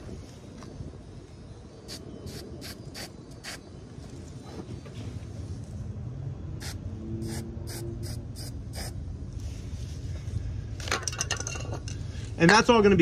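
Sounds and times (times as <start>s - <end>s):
aerosol spray can hissing: 6.6s - 8.9s.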